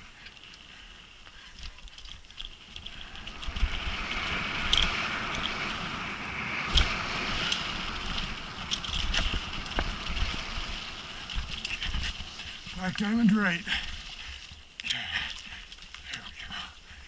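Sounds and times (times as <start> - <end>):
bike knocking and rattling: 0.0 - 16.4
bike tyres rushing on dirt: 0.0 - 17.0
wind buffeting microphone: 1.5 - 14.7.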